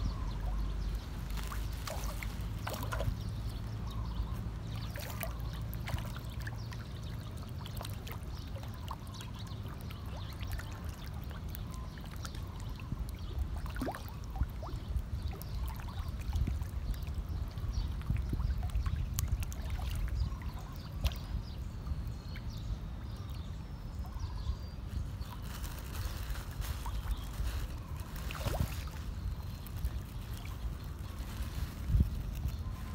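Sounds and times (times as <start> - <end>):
fish thrashing and splashing water: 0.9 - 3.4, 4.7 - 12.6, 25.3 - 31.2.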